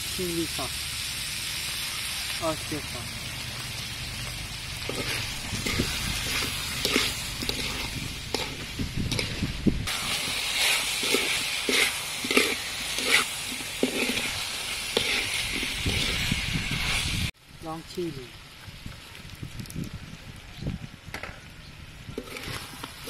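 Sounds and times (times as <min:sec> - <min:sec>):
meat sizzling in a wok: 0:00.0 - 0:21.0, 0:21.8 - 0:23.0
metal spatula scraping a pan: 0:04.8 - 0:17.1, 0:22.2 - 0:23.0.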